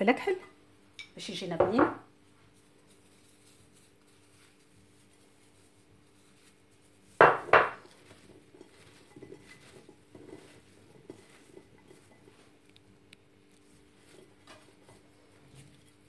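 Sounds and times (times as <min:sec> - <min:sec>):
bowl knocking on worktop: 0:01.6 - 0:02.1, 0:07.2 - 0:07.9
soft clatters of vegetable cubes: 0:02.0 - 0:16.0.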